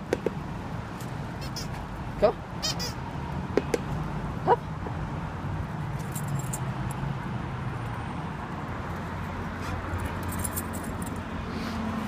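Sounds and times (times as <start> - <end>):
traffic noise: 0.0 - 12.0
vehicle engine rumble: 0.0 - 12.0.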